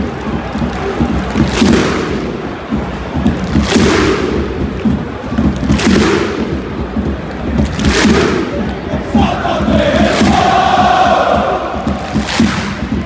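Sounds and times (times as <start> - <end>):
stadium crowd chanting: 7.8 - 13.0.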